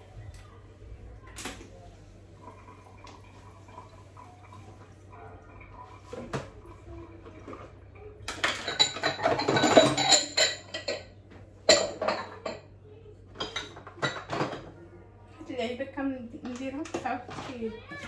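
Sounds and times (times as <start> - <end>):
dishes and cutlery clattering: 7.2 - 12.7, 13.3 - 14.8.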